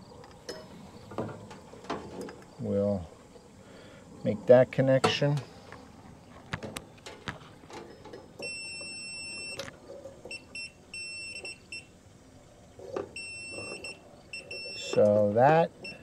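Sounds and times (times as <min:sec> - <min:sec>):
multimeter continuity beeps: 0:07.9 - 0:09.7, 0:10.3 - 0:12.0, 0:13.1 - 0:15.2, 0:15.8 - 0:16.0.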